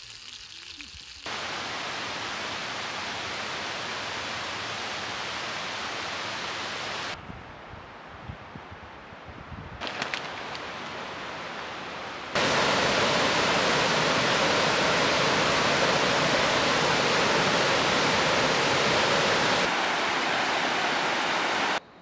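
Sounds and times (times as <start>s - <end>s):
water rushing over rocks: 1.3s - 7.2s, 12.4s - 21.8s.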